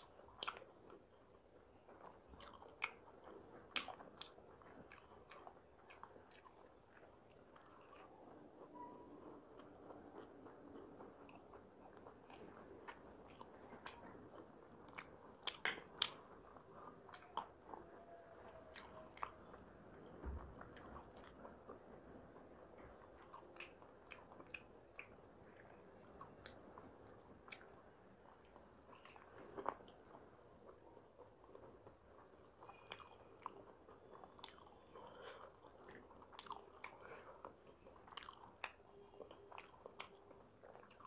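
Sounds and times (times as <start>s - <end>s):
wet chewing: 0.0s - 41.0s
soft low thump: 20.2s - 20.6s.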